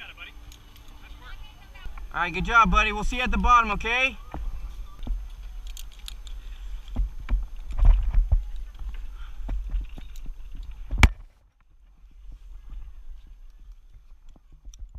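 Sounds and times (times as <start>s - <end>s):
wind rumbling on microphone: 1.2s - 14.9s
zip line gear clicks and knocks: 5.0s - 11.2s, 13.4s - 14.9s.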